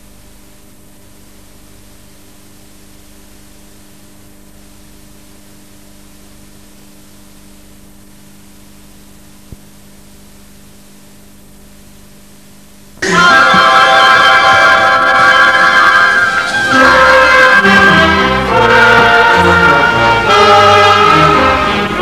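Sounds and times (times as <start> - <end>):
mains hum: 0.0 - 22.0
tape hiss: 0.0 - 22.0
loud music: 13.0 - 22.0.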